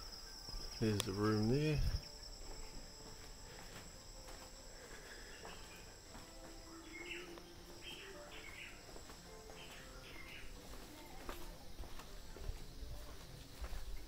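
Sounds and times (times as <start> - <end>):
night insects trilling: 0.0 - 14.0.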